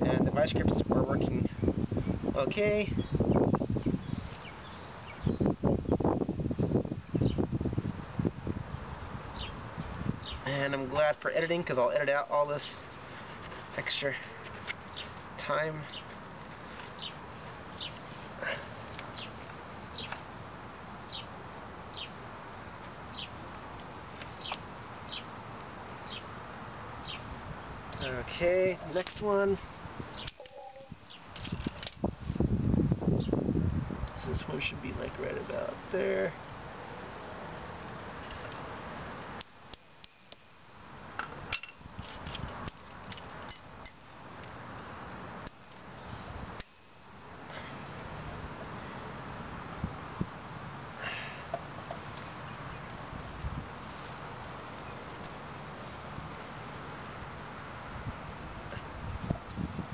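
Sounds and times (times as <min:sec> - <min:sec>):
steady background hiss: 0:00.0 - 0:59.9
bird chirping: 0:02.9 - 0:06.0, 0:07.0 - 0:07.5, 0:09.0 - 0:10.4, 0:14.2 - 0:15.2, 0:15.8 - 0:26.3, 0:27.0 - 0:27.3, 0:29.6 - 0:31.6.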